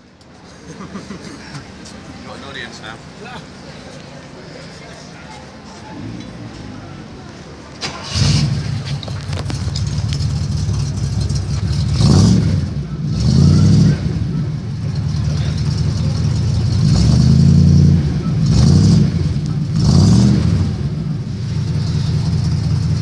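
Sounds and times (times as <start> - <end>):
car engine idling and revving: 5.7 - 23.0.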